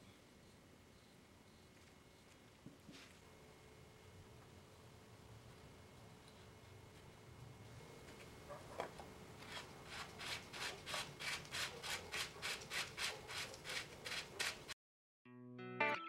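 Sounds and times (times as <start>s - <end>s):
electric guitar music: 15.3s - 16.0s.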